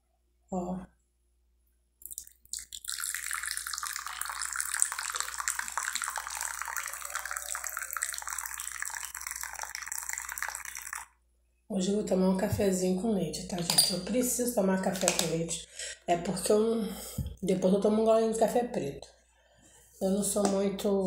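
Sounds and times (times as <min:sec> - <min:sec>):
liquid pouring into cup: 0:02.0 - 0:11.2.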